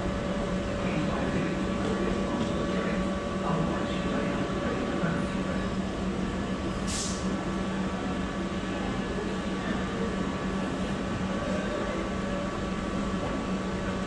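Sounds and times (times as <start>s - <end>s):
electric train humming: 0.0s - 14.0s
short hiss: 6.8s - 7.3s.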